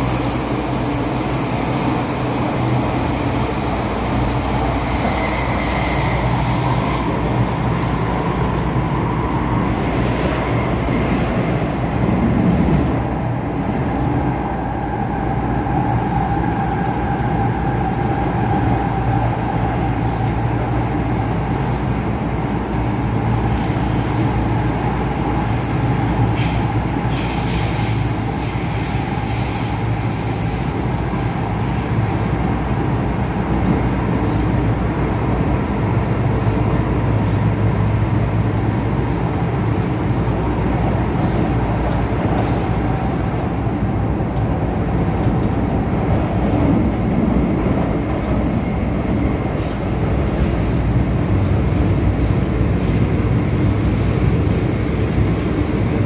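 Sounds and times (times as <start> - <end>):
train rumbling through tunnel: 0.0 - 56.0
high-pitched wheel squeal: 4.8 - 8.2, 23.2 - 32.8.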